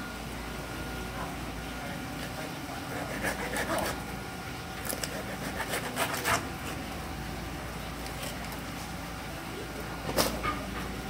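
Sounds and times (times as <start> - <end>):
low machine hum: 0.0 - 11.0
knife cutting fish: 2.9 - 4.0, 4.8 - 6.8.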